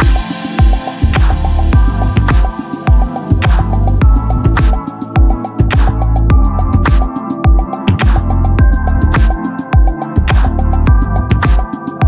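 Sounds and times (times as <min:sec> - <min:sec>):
kick drums: 0:00.0 - 0:11.7
hi-hat ticks: 0:00.0 - 0:12.0.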